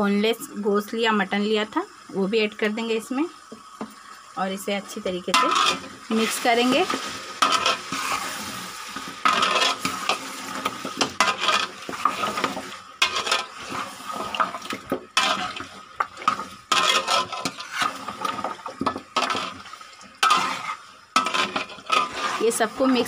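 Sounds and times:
light sizzle of frying: 0:00.0 - 0:23.0
metal spoon scraping steel pot: 0:05.3 - 0:08.3, 0:09.2 - 0:14.6, 0:15.2 - 0:18.6, 0:19.2 - 0:19.6, 0:20.2 - 0:23.0.

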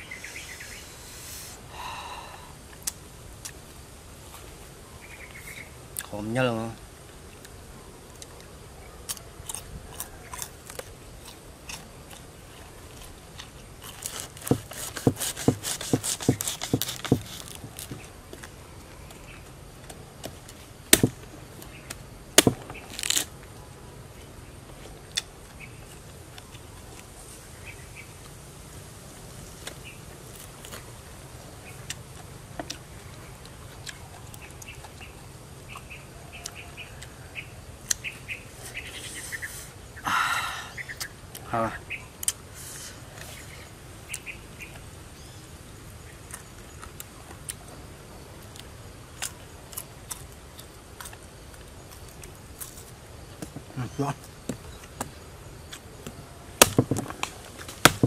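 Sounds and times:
crisp chewing crunches: 0:08.1 - 0:19.2, 0:22.4 - 0:23.4, 0:48.4 - 0:53.0
palm heart snapping: 0:13.8 - 0:18.5, 0:19.9 - 0:23.3, 0:54.5 - 0:58.0.

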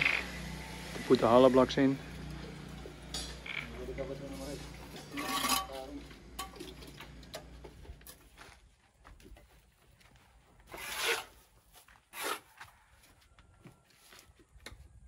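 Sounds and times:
mortar scraping on concrete: 0:04.2 - 0:06.0, 0:10.7 - 0:11.4.

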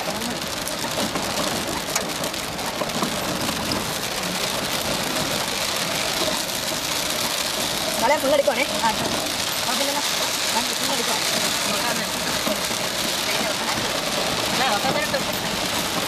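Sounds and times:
heavy rain on windscreen: 0:00.0 - 0:16.0.

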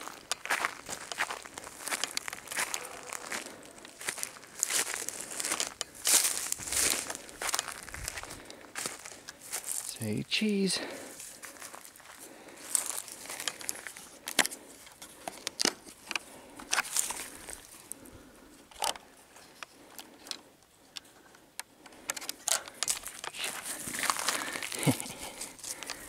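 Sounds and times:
crinkly rustling: 0:00.0 - 0:10.0, 0:11.0 - 0:20.5, 0:21.8 - 0:26.0.

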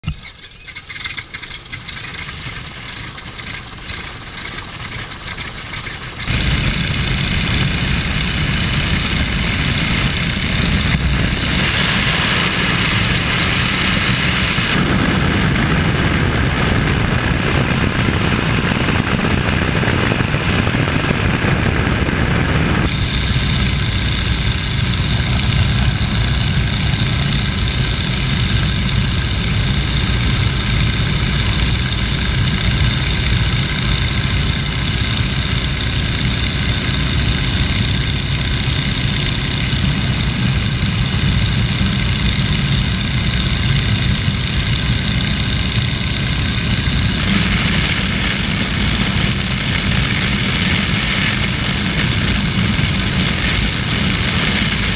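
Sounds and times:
biplane radial engine: 0:00.0 - 0:54.9.

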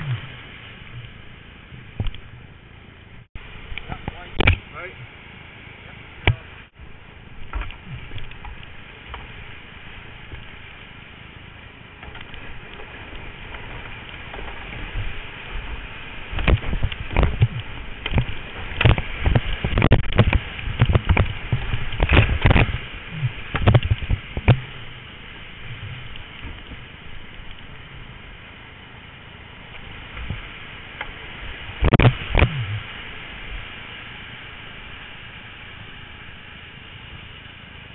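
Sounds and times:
kayak splashes and knocks: 0:12.0 - 0:27.7.

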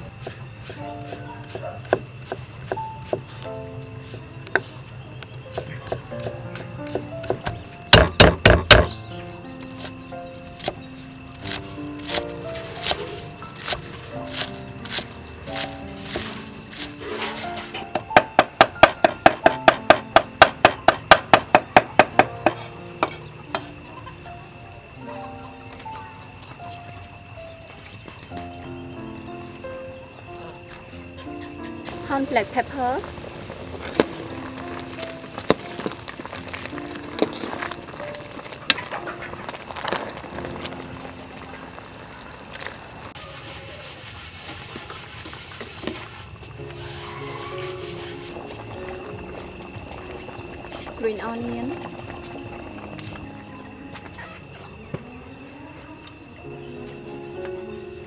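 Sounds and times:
soft background music: 0:00.0 - 0:42.7, 0:45.8 - 0:58.0
cleaver chopping on wooden block: 0:07.2 - 0:08.9
ladle stirring bubbling soup: 0:33.0 - 0:46.1.

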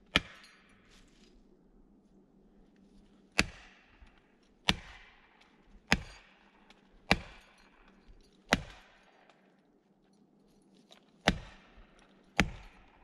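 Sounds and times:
axe striking wedge: 0:00.1 - 0:00.6, 0:03.4 - 0:04.0, 0:04.6 - 0:05.3, 0:05.9 - 0:06.3, 0:07.1 - 0:07.4, 0:08.5 - 0:09.0, 0:11.3 - 0:11.8, 0:12.4 - 0:12.9.

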